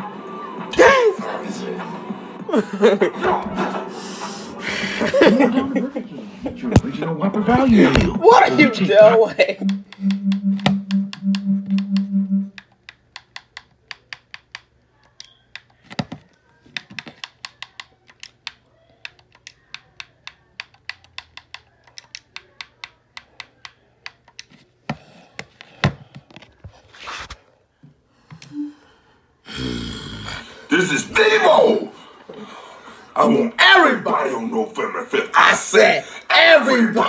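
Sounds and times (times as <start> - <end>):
pulsing low tone: 9.6 - 12.5.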